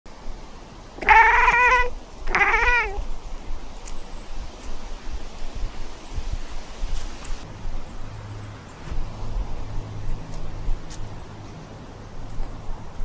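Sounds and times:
cat meowing: 1.0s - 3.0s.

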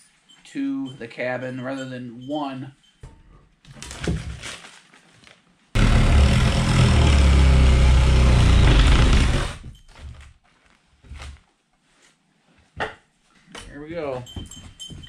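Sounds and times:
power tool cutting: 5.8s - 9.6s.

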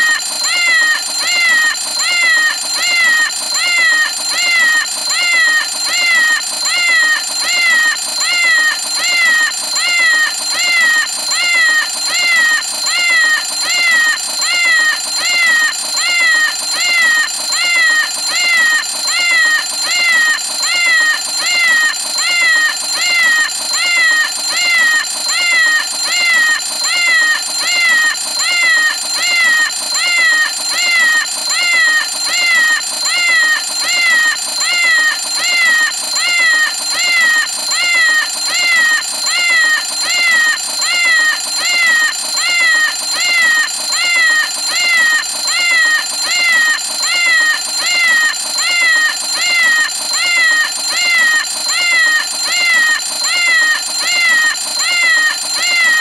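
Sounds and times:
cat alarm clock meowing: 0.0s - 56.0s.

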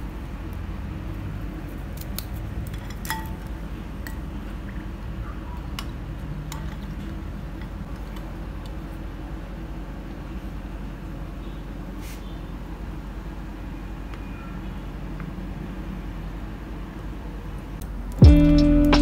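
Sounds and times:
steady low hum: 0.0s - 19.0s
spoon clinking glass bowl: 2.7s - 3.5s.

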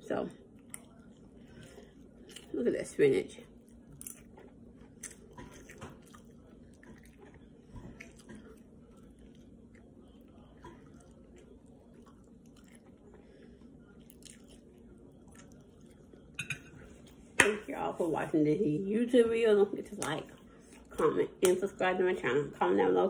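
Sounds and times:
person chewing food: 0.4s - 2.6s, 3.4s - 17.4s.

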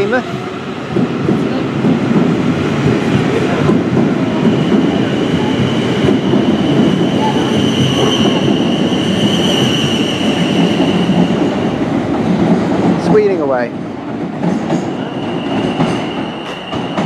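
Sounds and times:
train wheels rumbling: 0.0s - 17.0s.

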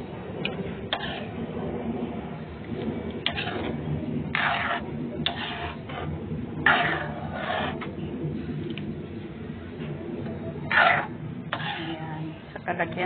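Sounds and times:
steady low hum: 0.0s - 13.0s
utensil scraping sauce in a pan: 0.9s - 1.4s, 3.2s - 8.6s, 10.6s - 12.6s.

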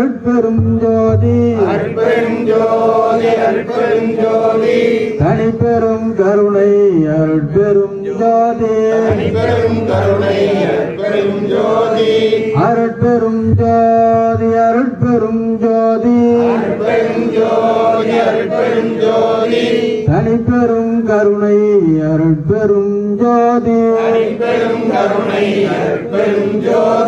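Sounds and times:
man chanting into a microphone: 0.0s - 25.2s
steady drone: 0.6s - 4.5s, 9.0s - 12.4s.

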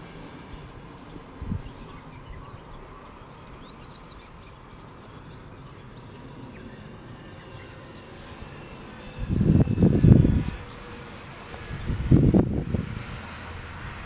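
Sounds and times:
small birds chirping: 0.5s - 8.7s, 10.0s - 12.2s.

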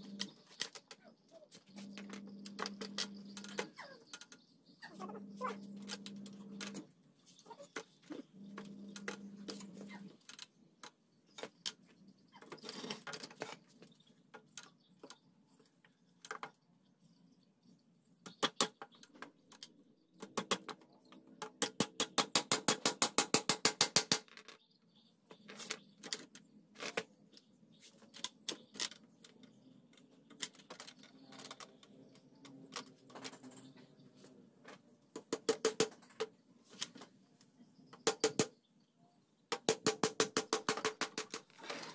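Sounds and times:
hammer driving nails into wood: 21.6s - 24.3s, 38.0s - 38.5s, 39.5s - 41.4s.

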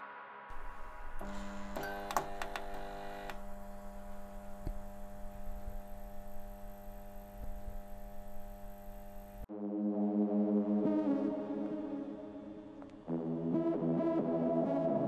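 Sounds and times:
electrical mains hum: 0.5s - 9.5s
fluorescent tubes clicking on: 0.5s - 9.5s.

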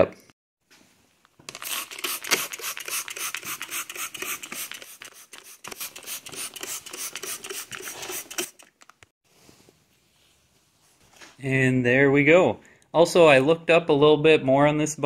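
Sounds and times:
spray bottle squirts: 1.6s - 8.6s.

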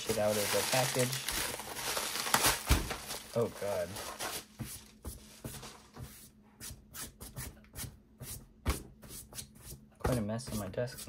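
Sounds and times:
plastic packaging rustling: 0.0s - 6.0s.

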